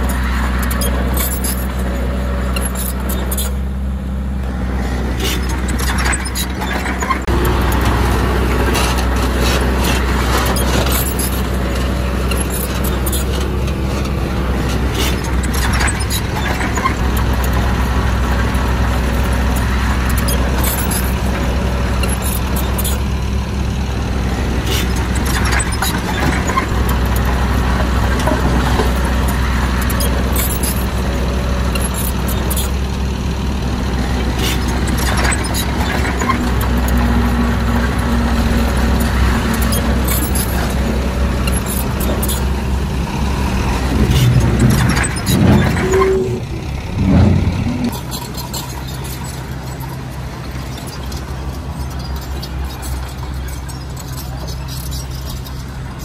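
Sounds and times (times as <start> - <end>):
heavy diesel machinery running: 0.0 - 56.0
metallic knocks and clanks: 43.4 - 48.8.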